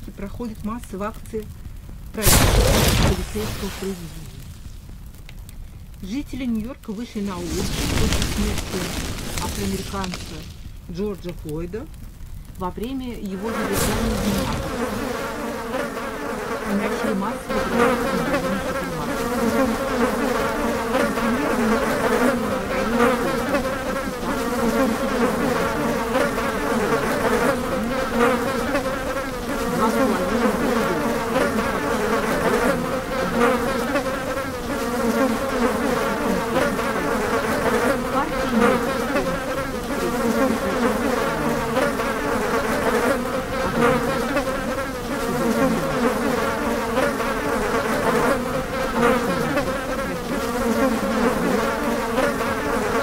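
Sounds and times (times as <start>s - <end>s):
swarm of insects buzzing: 0.0s - 53.0s.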